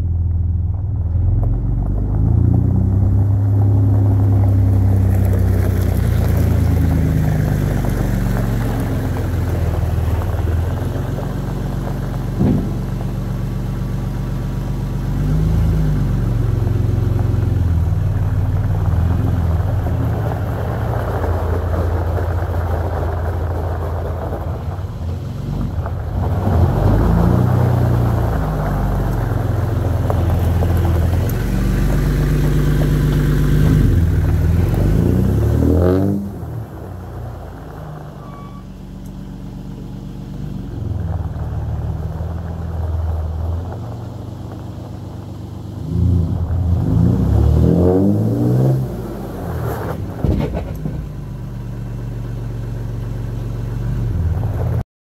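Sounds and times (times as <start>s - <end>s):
diesel truck engine revving: 0.0s - 54.8s
short knock: 12.4s - 13.0s.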